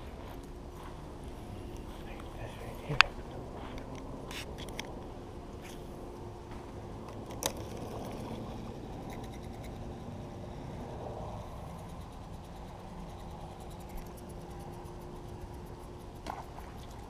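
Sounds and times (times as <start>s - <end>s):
fishing rod handling rumble: 7.0s - 9.7s.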